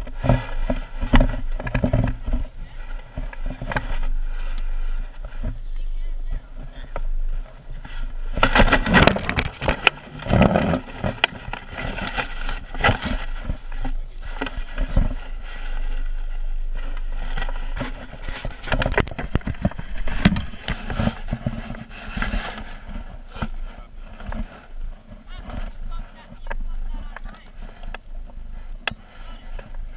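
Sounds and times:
landing net handling noise: 7.9 - 15.3.

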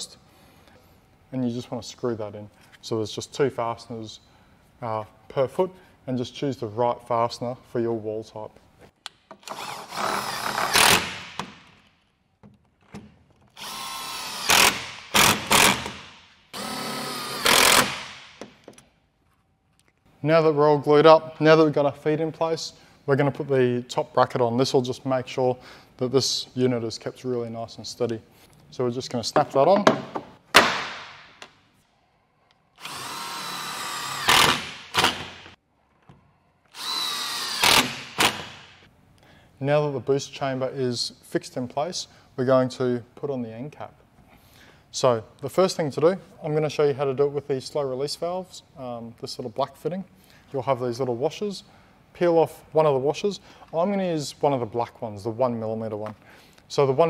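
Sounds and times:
cordless drill driving screws: 9.4 - 11.5, 13.5 - 18.2, 32.8 - 35.5, 36.7 - 38.6.

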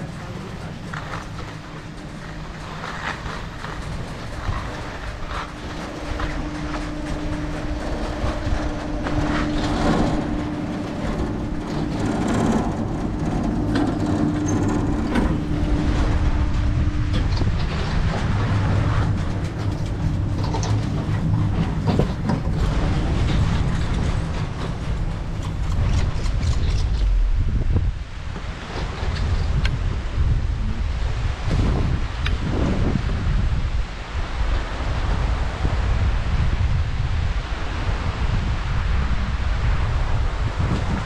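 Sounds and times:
clacks and rattles of chairs: 0.0 - 27.1
chairlift machinery hum: 0.0 - 41.0
low rumble: 0.0 - 41.0.

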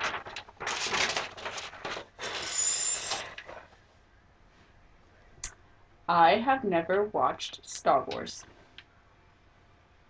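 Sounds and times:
paper rustling and crinkling: 0.0 - 3.8.

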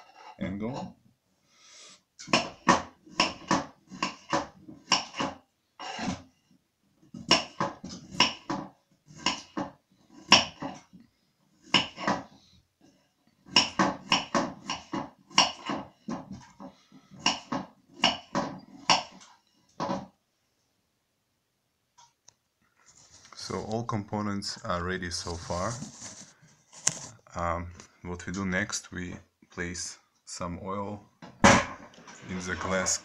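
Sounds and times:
knife chopping on wooden board: 7.2 - 10.8, 11.6 - 12.3, 13.5 - 16.4.

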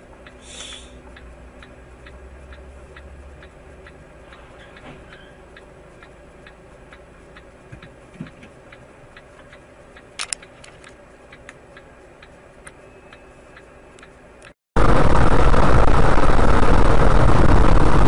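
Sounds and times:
turn signal ticking: 0.0 - 14.6
low hum: 0.0 - 18.0
sharp clicks: 9.2 - 14.6.

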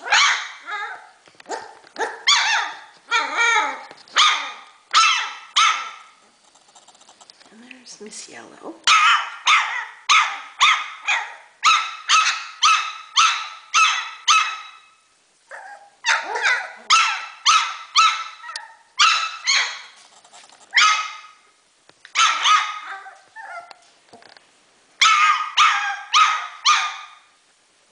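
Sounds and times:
dog barking high-pitched: 0.0 - 6.1, 8.9 - 20.0, 20.7 - 21.4, 22.1 - 23.7, 25.0 - 27.3.

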